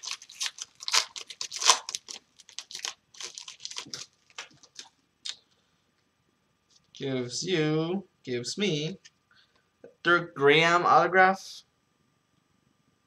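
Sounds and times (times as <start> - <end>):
foil wrappers tearing and crinkling: 0.0 - 4.9.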